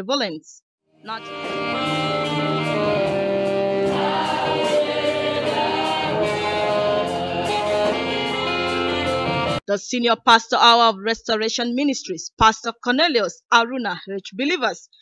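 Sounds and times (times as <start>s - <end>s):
live band playing: 1.1s - 9.6s
congregation singing: 2.0s - 9.6s.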